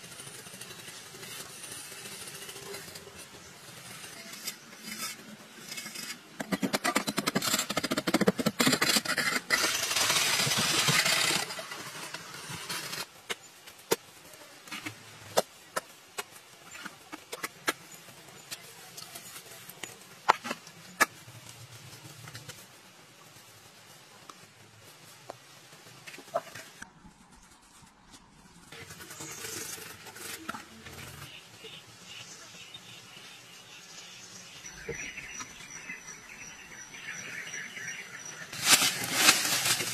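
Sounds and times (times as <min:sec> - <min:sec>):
scraping on packed earth: 0:14.3 - 0:39.9.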